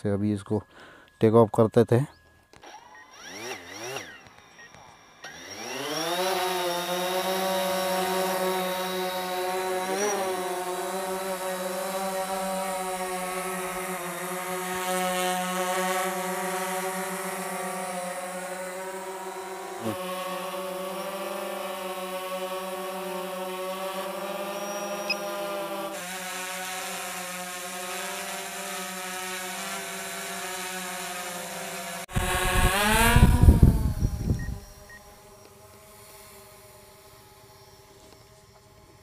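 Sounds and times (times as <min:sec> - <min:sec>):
quadcopter propellers humming: 0:02.1 - 0:39.0.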